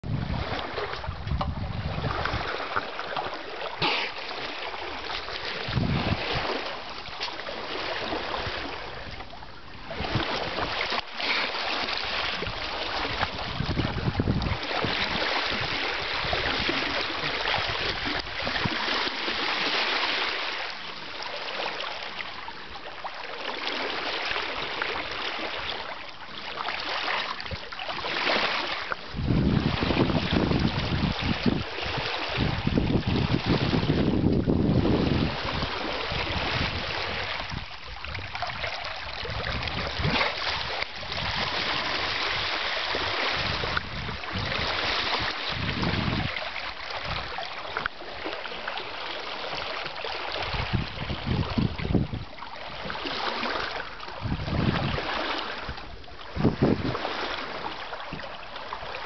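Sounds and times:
wind buffeting microphone: 0.0 - 2.8, 5.4 - 7.0, 8.0 - 10.9, 12.0 - 19.0, 29.0 - 47.5, 50.3 - 53.4, 54.2 - 58.3
water splashing along a hull: 0.0 - 59.0.

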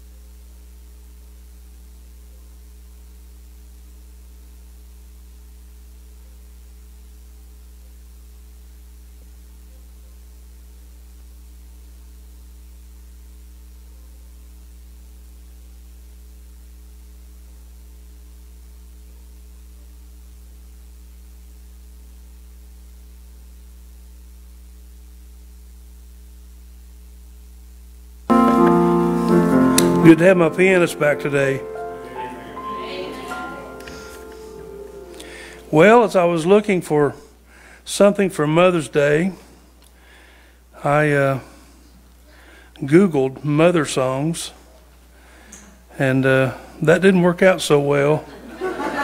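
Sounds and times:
electrical mains hum: 0.0 - 49.0
faint hiss: 28.3 - 47.0.

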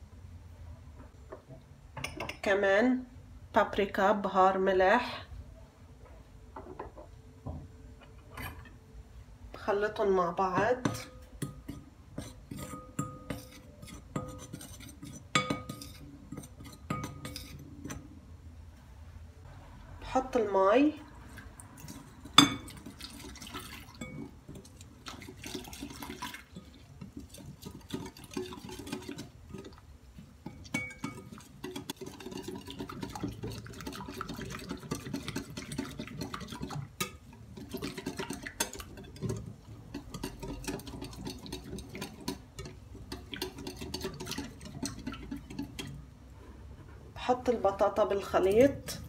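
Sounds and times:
whisk beating batter in glass bowl: 10.8 - 17.6, 21.8 - 46.0
water pouring into bowl: 21.3 - 29.8.

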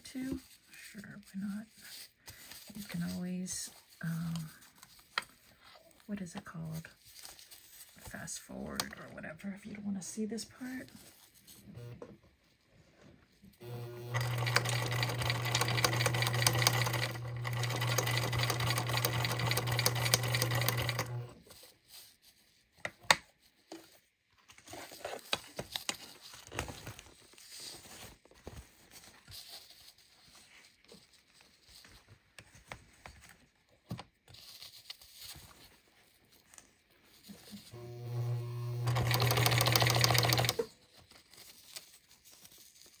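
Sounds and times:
sewing machine running: 13.6 - 21.4, 37.7 - 40.7.

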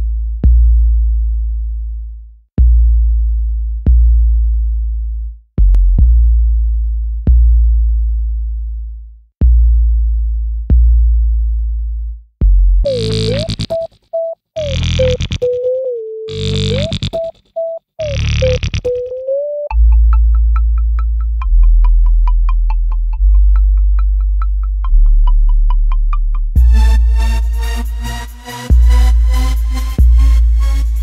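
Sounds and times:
deep bass kicks: 0.1 - 1.6, 2.6 - 4.8, 5.6 - 8.4, 9.4 - 12.8, 26.6 - 27.8, 28.7 - 30.7
buzzy synth line: 12.9 - 13.8, 14.6 - 17.3, 18.0 - 31.0.

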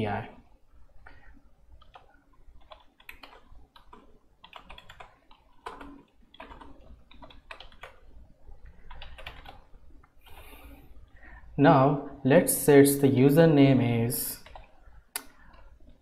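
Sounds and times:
typing on computer keyboard: 1.0 - 10.5, 14.4 - 14.8.

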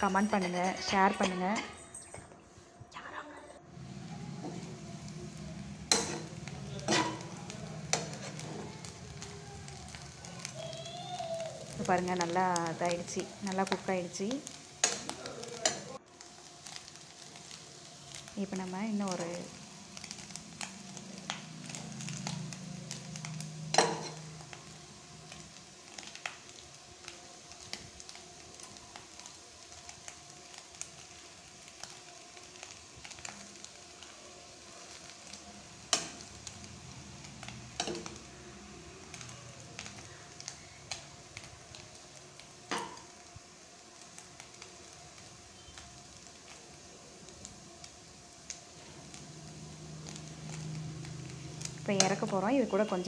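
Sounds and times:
food frying softly in oil: 0.0 - 53.0
spoon clicking and scraping pan: 5.9 - 6.3, 6.9 - 7.3.

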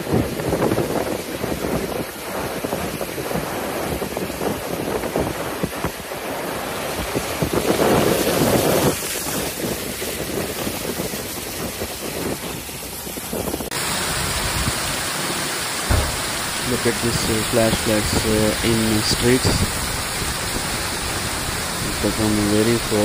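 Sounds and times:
flash flood pouring down street: 0.0 - 23.0
floodwater rushing: 0.0 - 23.0
wind buffeting microphone: 0.0 - 23.0.

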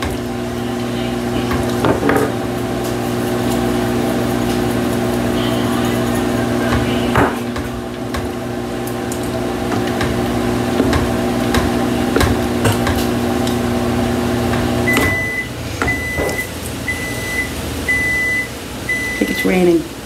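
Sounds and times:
microwave oven humming: 0.0 - 20.0
microwave beeps: 14.7 - 19.8.

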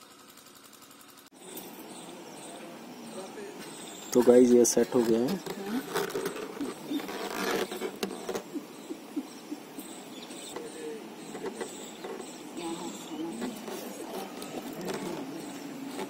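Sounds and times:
faint handling noise: 3.6 - 8.8, 10.4 - 16.0
plastic rustling: 4.7 - 8.5, 12.9 - 16.0.

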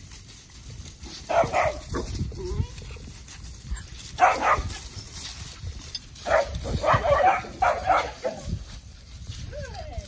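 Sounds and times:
puppies barking: 1.2 - 2.0, 4.1 - 5.0, 6.2 - 8.5.

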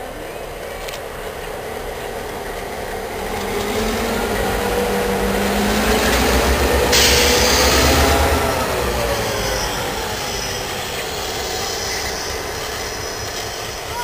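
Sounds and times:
diesel locomotive engine drone: 0.0 - 14.0
loud hiss: 6.9 - 8.4, 9.2 - 14.0.

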